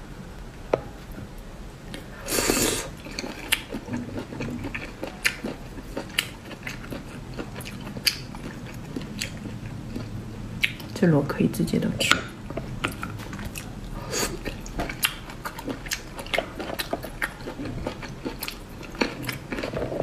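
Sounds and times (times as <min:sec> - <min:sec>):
chewing: 0:01.9 - 0:11.0, 0:12.4 - 0:20.0
loud slurp: 0:02.2 - 0:02.9.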